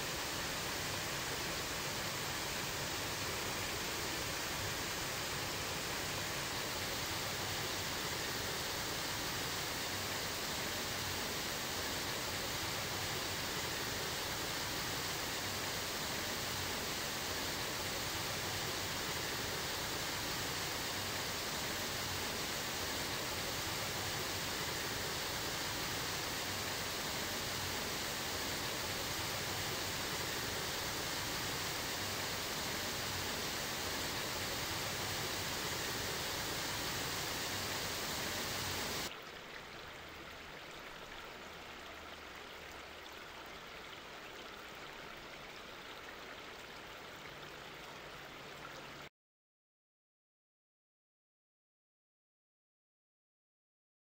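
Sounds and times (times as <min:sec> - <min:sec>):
waterfall rushing over boulders: 0:00.0 - 0:39.1
duller flow of water: 0:00.0 - 0:49.1.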